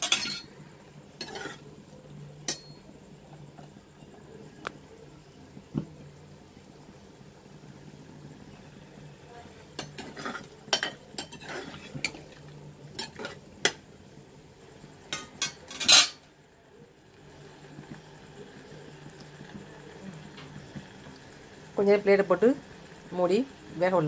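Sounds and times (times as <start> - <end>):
spoon clattering: 0.0 - 0.5
metal spoon scraping a pan: 0.0 - 0.6, 1.2 - 1.7, 9.7 - 13.8, 15.1 - 16.2.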